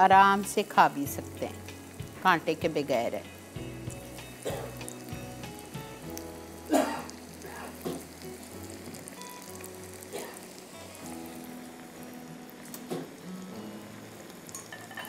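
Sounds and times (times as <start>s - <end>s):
fish sizzling in hot oil: 0.0s - 15.0s.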